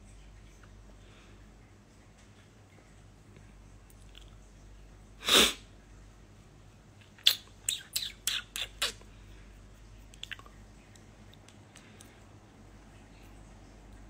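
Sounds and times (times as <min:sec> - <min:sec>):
high squeaky mouth sounds: 0:07.2 - 0:09.1.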